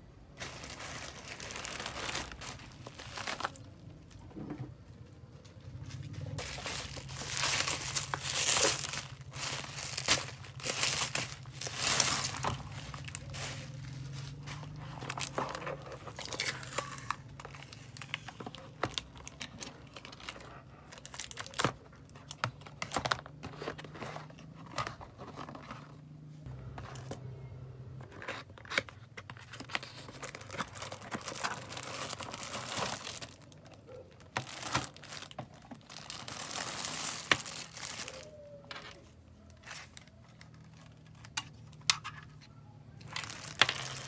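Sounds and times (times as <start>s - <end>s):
bubble wrap crinkling and tearing: 0.4s - 3.8s, 6.4s - 22.4s, 29.4s - 38.6s, 43.1s - 44.0s
cardboard box handled and opened: 6.4s - 16.6s, 22.8s - 26.0s.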